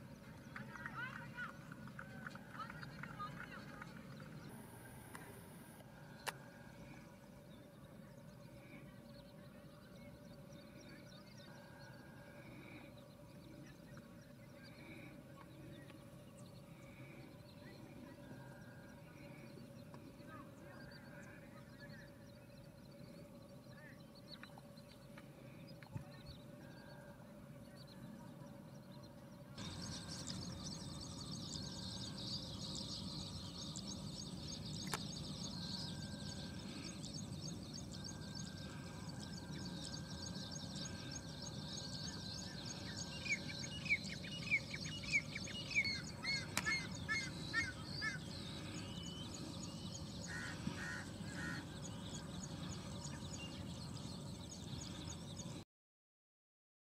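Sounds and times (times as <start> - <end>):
lapwing calling: 29.6 - 53.3.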